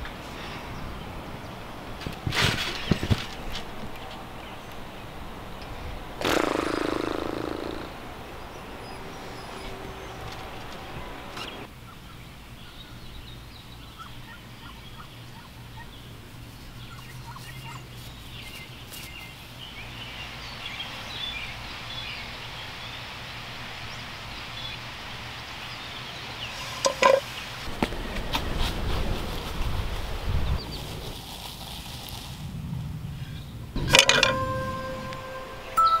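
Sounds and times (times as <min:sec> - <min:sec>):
small birds chirping: 0:02.7 - 0:27.6
metal frying pan clanking: 0:33.8 - 0:35.4.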